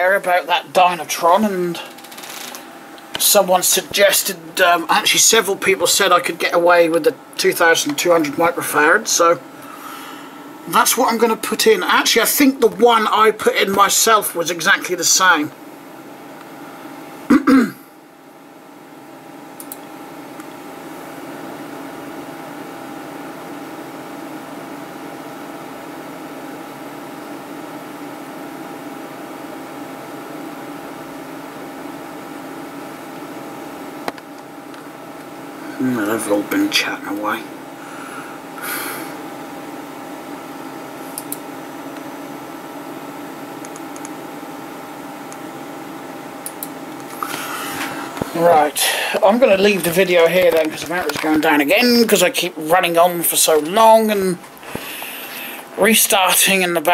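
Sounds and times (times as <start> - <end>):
computer fans whirring: 0.0 - 56.9
computer mouse clicks: 19.6 - 19.9, 43.6 - 44.2.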